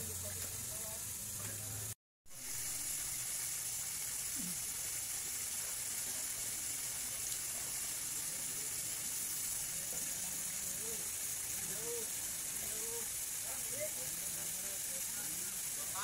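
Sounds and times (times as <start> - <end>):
high-pitched outdoor hiss: 0.0 - 16.0.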